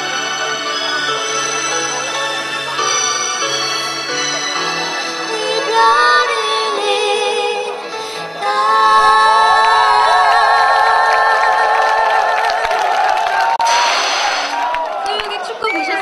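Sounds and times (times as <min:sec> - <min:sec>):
amplified music: 0:00.0 - 0:12.5
woman singing: 0:05.4 - 0:11.6.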